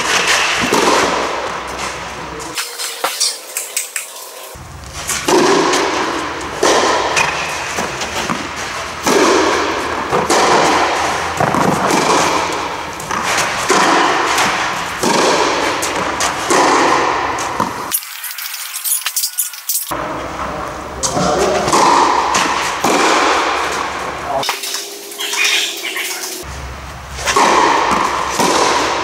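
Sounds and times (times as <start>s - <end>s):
tennis ball struck by rackets: 0.0s - 1.9s, 4.6s - 17.9s, 21.6s - 25.6s, 26.4s - 29.0s.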